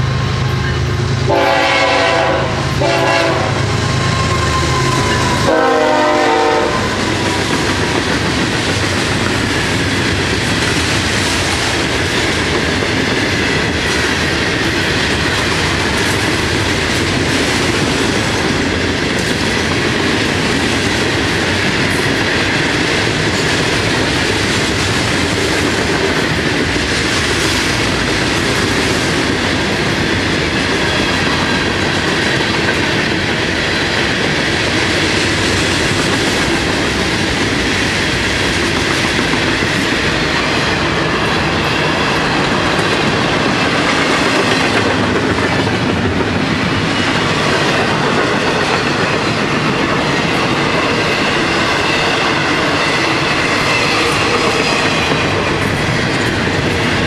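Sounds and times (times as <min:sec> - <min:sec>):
diesel locomotive rumble: 0:00.0 - 0:57.0
freight train cars clattering: 0:00.0 - 0:57.0
locomotive horn toots: 0:00.4 - 0:06.9.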